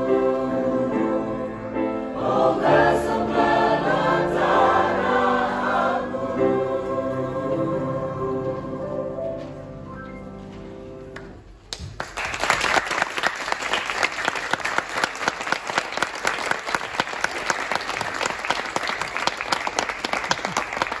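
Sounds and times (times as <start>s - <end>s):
choir singing chord: 0.0s - 9.6s
audience applause: 11.7s - 21.0s.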